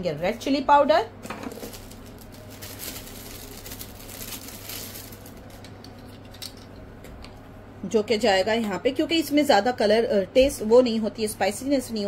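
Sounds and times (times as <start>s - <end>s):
low steady hum: 0.0s - 12.0s
powder sprinkling patter: 1.5s - 6.1s.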